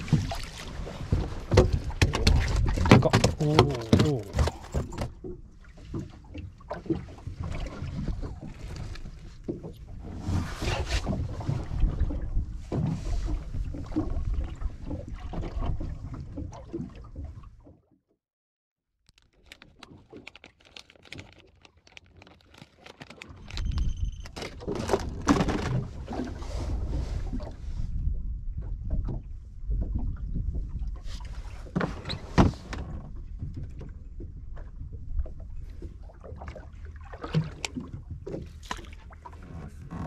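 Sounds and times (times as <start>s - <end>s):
sea: 0.0s - 18.3s, 19.0s - 40.0s
hands handling things: 19.1s - 25.8s
wind on microphone: 25.2s - 36.0s.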